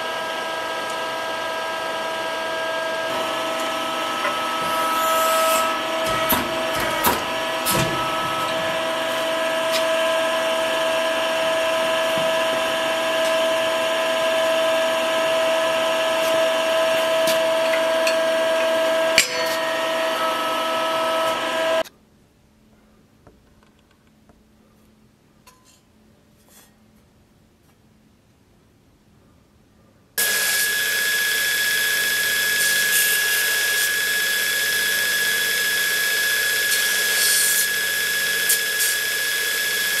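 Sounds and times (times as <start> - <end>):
metal press whining: 3.0 - 21.8
metal knocks: 5.6 - 10.6, 17.3 - 20.2.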